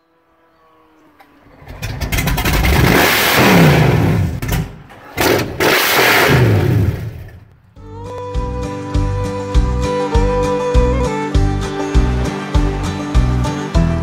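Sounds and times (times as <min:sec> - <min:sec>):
powerboat engine revving: 0:01.4 - 0:07.4.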